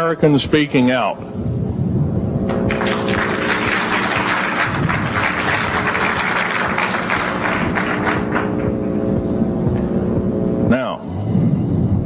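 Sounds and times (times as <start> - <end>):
low steady hum: 0.0 - 12.0
audience applauding: 2.5 - 8.8.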